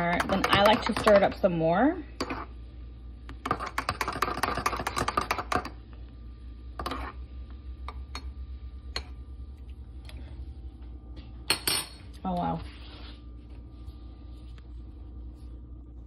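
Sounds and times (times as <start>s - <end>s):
spoon stirring in ceramic mug: 0.0s - 1.4s, 2.2s - 2.5s, 3.3s - 5.8s, 6.8s - 7.2s.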